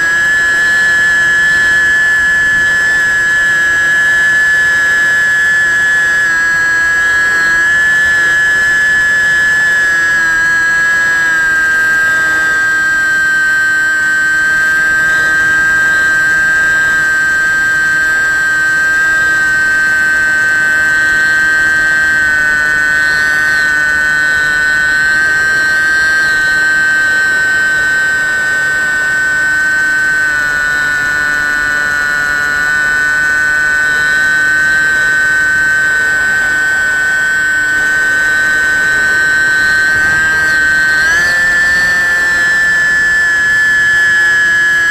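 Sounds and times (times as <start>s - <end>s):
model plane motor whining: 0.0s - 44.9s.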